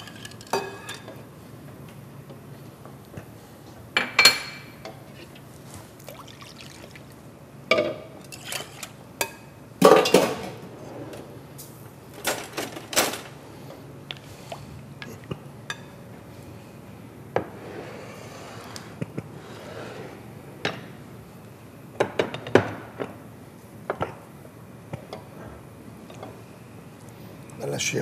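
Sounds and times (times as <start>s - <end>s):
utensils clinking against pots: 0.0s - 1.2s, 7.7s - 10.6s.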